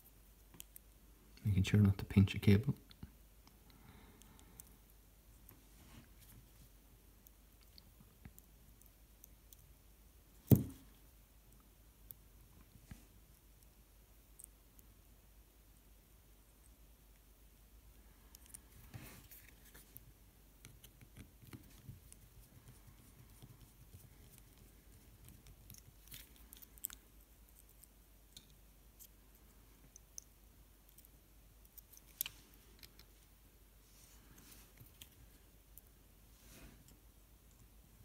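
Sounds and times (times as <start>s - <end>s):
faint clicks of handled plastic parts: 0.4s - 1.5s, 2.8s - 4.8s, 18.0s - 33.3s, 34.2s - 36.0s, 36.6s - 37.8s.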